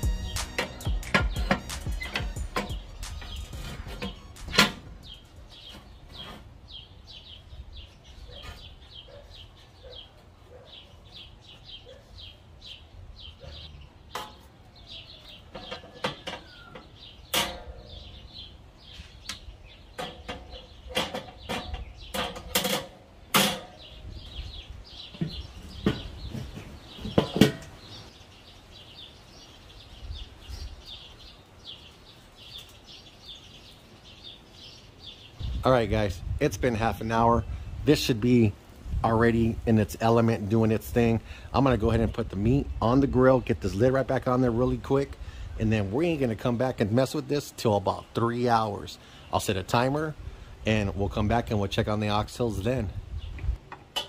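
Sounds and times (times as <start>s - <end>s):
small birds chirping: 0.0s - 53.7s
metal grill parts clanking: 0.2s - 6.7s, 14.1s - 14.6s, 15.2s - 18.2s, 19.9s - 24.0s, 25.1s - 27.9s, 53.6s - 54.0s.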